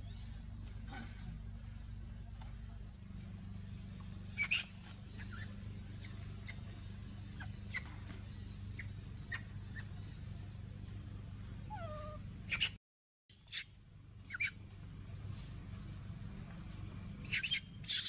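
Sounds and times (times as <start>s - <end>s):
baby monkey distress squeaks: 4.3s - 6.6s, 7.4s - 8.0s, 8.8s - 9.9s, 11.7s - 12.8s, 13.4s - 13.7s, 14.3s - 14.5s, 17.2s - 18.0s.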